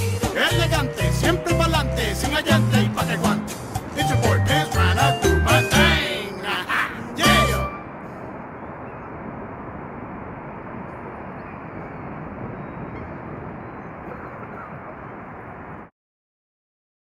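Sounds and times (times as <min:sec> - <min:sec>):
distant city traffic: 0:00.5 - 0:15.9.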